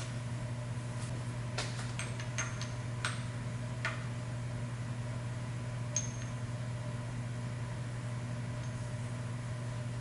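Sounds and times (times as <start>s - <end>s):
steady low hum: 0.0s - 10.0s
small metallic clink: 6.0s - 6.4s.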